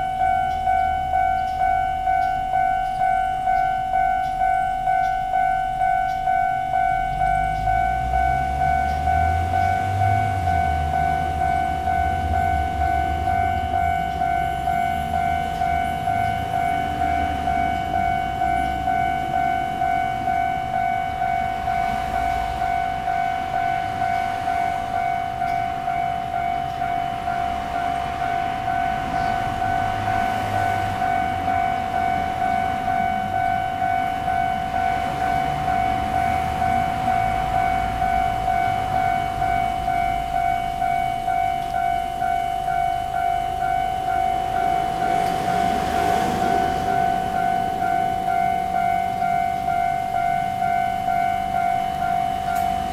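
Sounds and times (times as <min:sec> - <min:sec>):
level crossing warning bell: 0:00.0 - 0:52.9.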